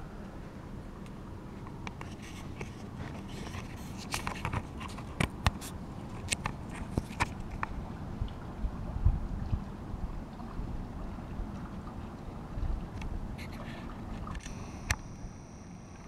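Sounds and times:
handling clicks and scrapes: 1.9s - 7.6s.

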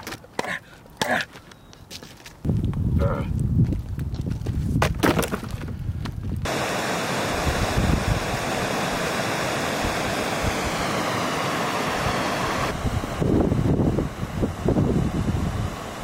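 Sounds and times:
creek water rushing: 6.5s - 16.0s.

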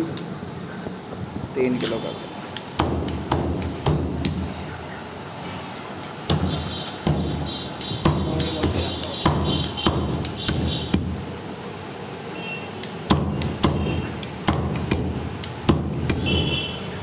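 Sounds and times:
cleaver chopping on wooden block: 2.6s - 4.5s, 6.0s - 11.2s, 12.8s - 16.5s.

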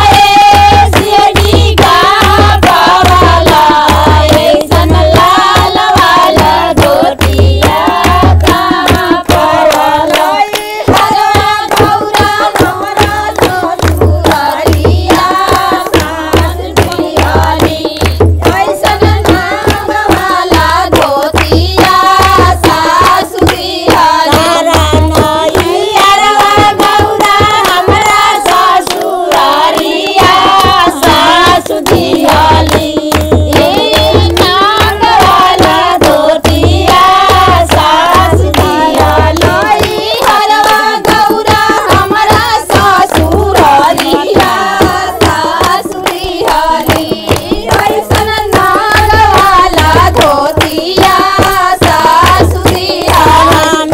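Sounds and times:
rhythmic hand-clapping: 0.0s - 53.9s
women singing together: 0.0s - 53.9s.

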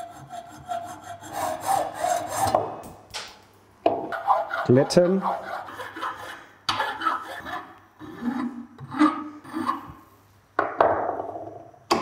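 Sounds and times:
hand file scraping metal: 0.0s - 2.6s, 4.1s - 10.0s.

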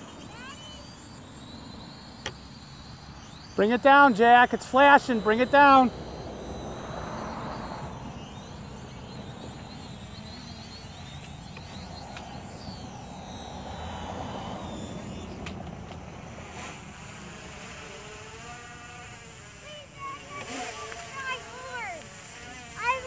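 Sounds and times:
drone propellers buzzing: 0.0s - 23.0s.

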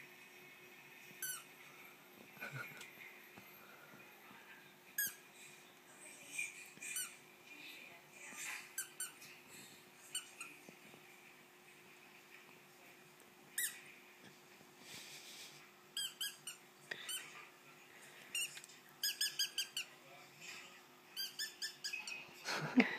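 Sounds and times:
squeaky dog toy squeaking: 8.8s - 9.2s, 16.0s - 17.2s, 18.3s - 19.9s, 21.2s - 22.3s.

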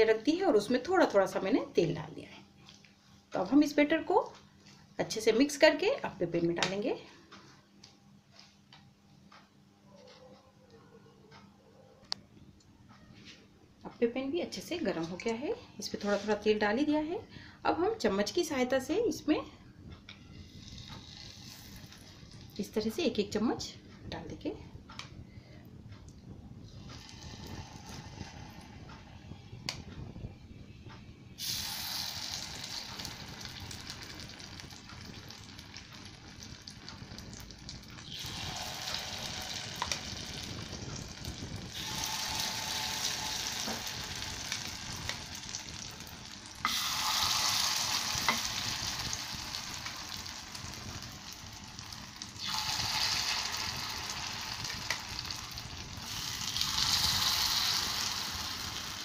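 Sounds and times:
batter sizzling in hot oil: 20.4s - 22.6s, 26.8s - 28.8s, 31.4s - 59.0s.

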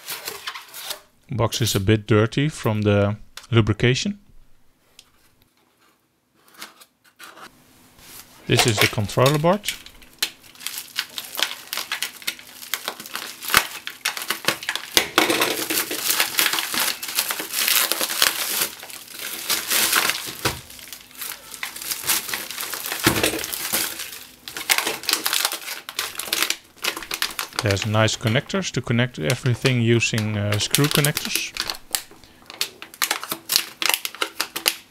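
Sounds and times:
bubble wrap crackling: 8.2s - 34.9s.

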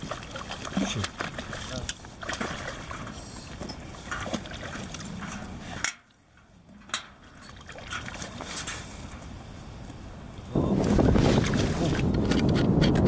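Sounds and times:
fish splashing at surface: 0.0s - 3.4s.

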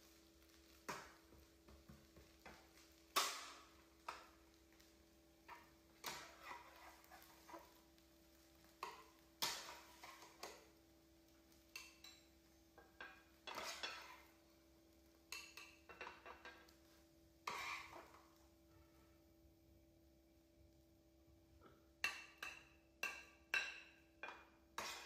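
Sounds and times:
metal spatula scraping frying pan: 2.4s - 8.0s, 8.6s - 10.8s, 11.6s - 14.5s, 15.3s - 18.4s, 22.0s - 25.0s.

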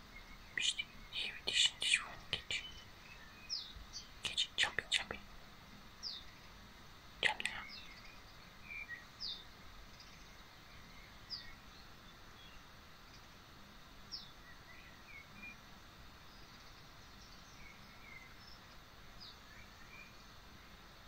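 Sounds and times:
soft bird chirps: 0.0s - 5.3s, 7.2s - 13.3s, 16.2s - 20.8s
steady hiss: 0.0s - 21.0s.

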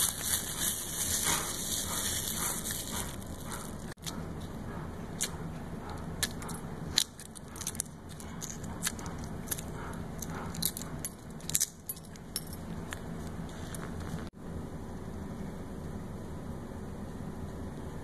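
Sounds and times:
egg shell crackling: 0.0s - 4.1s
steady low hum: 0.0s - 18.0s.

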